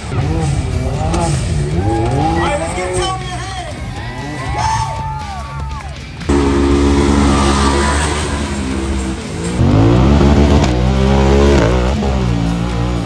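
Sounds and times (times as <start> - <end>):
engine revving hard: 6.3 - 13.0.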